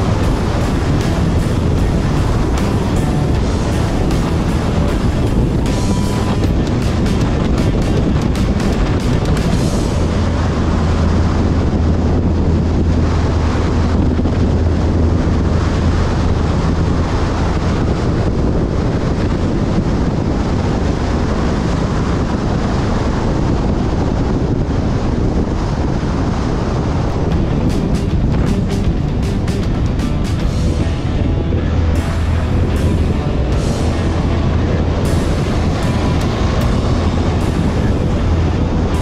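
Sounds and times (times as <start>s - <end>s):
motorcycle engine running: 0.0s - 12.2s, 27.3s - 39.0s
low hum: 0.0s - 39.0s
wind rushing over microphone: 0.0s - 39.0s.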